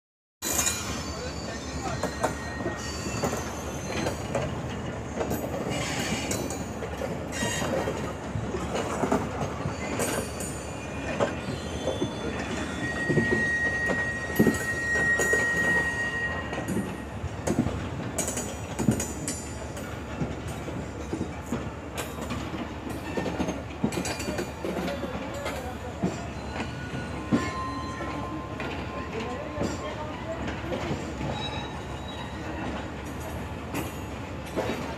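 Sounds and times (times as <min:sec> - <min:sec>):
steady train rumble: 0:00.4 - 0:34.9
high wheel squeal: 0:00.5 - 0:04.4, 0:07.3 - 0:07.8, 0:09.6 - 0:17.2, 0:26.0 - 0:30.4, 0:31.0 - 0:32.6
train wheels clicking over rail joints: 0:02.0 - 0:15.9, 0:16.5 - 0:34.9.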